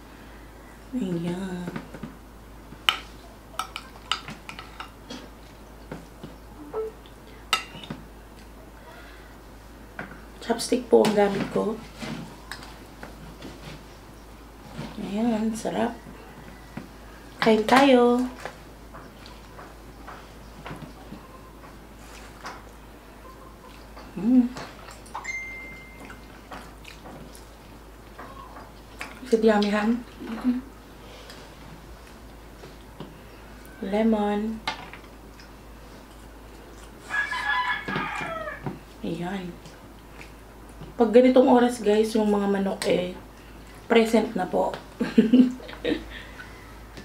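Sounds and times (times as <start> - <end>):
thin steady high tone: 6.6 - 7.0, 25.2 - 26.2
soft chewing of noodles: 25.9 - 29.2, 35.1 - 38.2.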